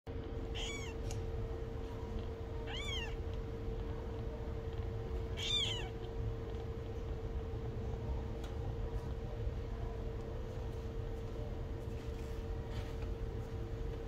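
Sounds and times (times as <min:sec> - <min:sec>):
faint steady hum: 0:00.1 - 0:14.0
kitten mewing: 0:00.5 - 0:01.2, 0:02.6 - 0:03.2, 0:05.3 - 0:06.1.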